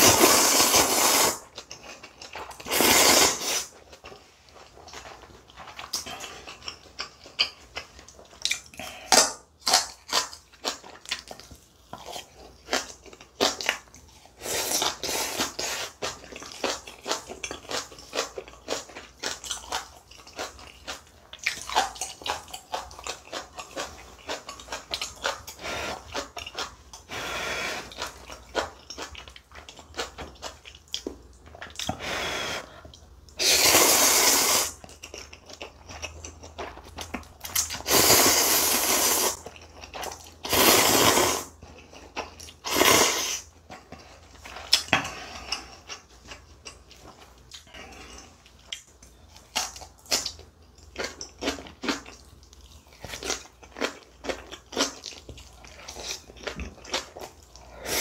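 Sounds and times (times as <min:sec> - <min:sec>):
loud noodle slurps: 0:00.0 - 0:01.5, 0:02.7 - 0:03.7, 0:14.4 - 0:15.9, 0:33.4 - 0:34.8, 0:37.8 - 0:39.4, 0:40.5 - 0:41.6, 0:42.6 - 0:43.5, 0:57.8 - 0:58.0.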